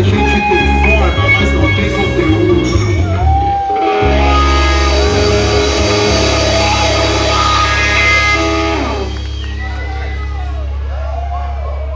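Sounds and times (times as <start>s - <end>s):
rock band playing: 0.0s - 10.9s.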